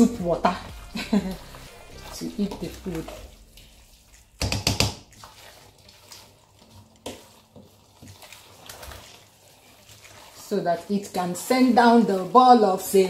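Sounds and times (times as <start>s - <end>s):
spoon stirring thick soup: 0.6s - 13.0s
knock on pot: 4.4s - 5.0s.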